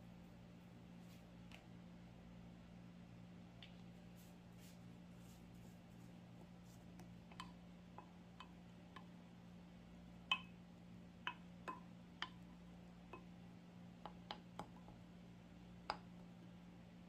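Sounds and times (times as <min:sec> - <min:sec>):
faint steady hum: 0:00.0 - 0:17.0
spatula clicking on glass jug: 0:10.2 - 0:10.6, 0:11.2 - 0:12.5.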